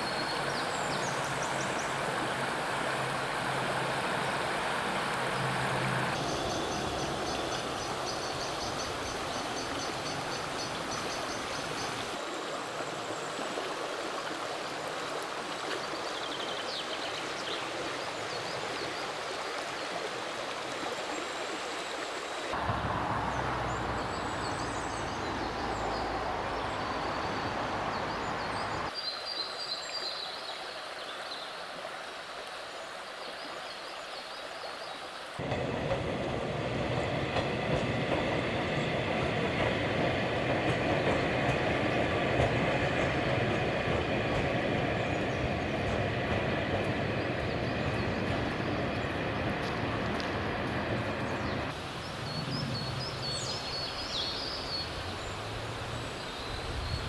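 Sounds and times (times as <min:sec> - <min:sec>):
river stream rushing: 0:00.0 - 0:57.0
tram running past with whine: 0:01.2 - 0:11.5, 0:22.6 - 0:27.9, 0:35.4 - 0:51.8.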